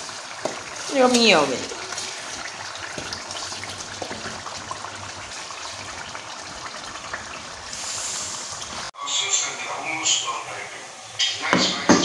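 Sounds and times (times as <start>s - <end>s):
stew bubbling in a pot: 0.0s - 8.9s.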